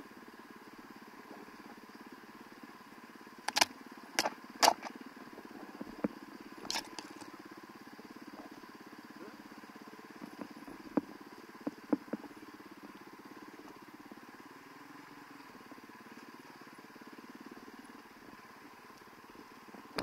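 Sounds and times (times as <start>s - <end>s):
sharp clicks and knocks: 3.5s - 4.9s.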